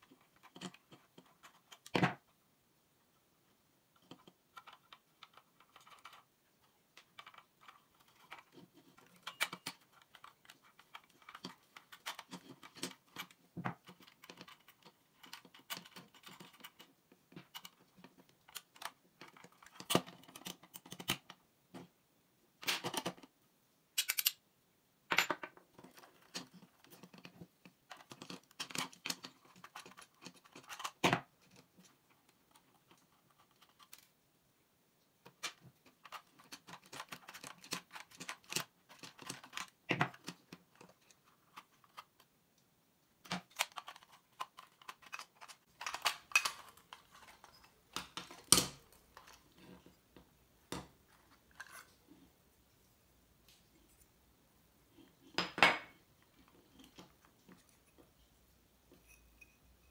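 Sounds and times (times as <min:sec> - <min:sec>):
small metal parts clicking: 0:24.0 - 0:24.4.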